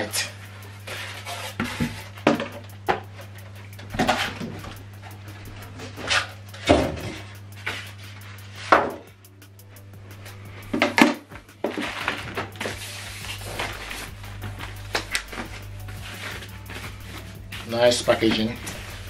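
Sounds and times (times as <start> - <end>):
styrofoam rustling and scraping: 0.0 - 2.6, 11.6 - 19.0.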